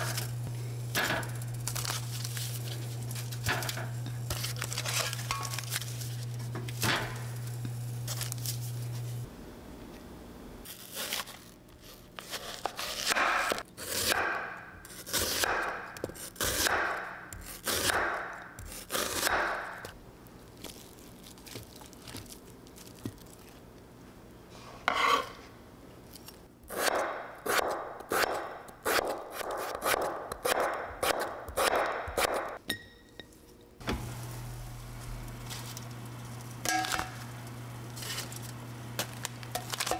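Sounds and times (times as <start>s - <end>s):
steady low hum: 0.0s - 10.7s, 23.5s - 39.9s
scraping and rubbing kitchenware: 24.6s - 25.5s.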